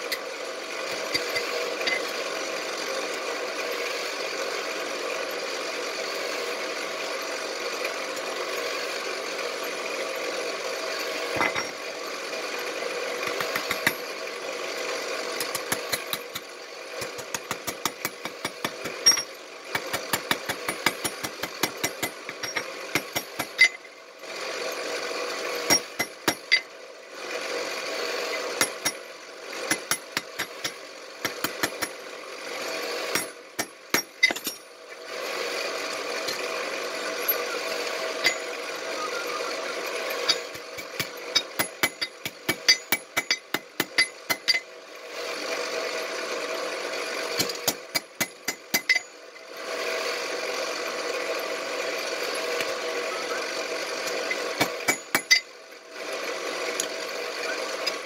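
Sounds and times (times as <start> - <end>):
hammer striking tongs on anvil: 33.1 - 34.6, 38.2 - 38.5, 40.2 - 44.7, 47.4 - 49.1, 54.6 - 55.5.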